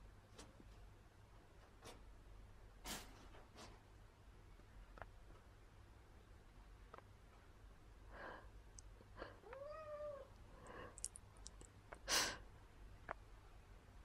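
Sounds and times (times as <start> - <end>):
soft breathy sounds: 8.0 - 12.7
cat meowing: 9.4 - 10.3.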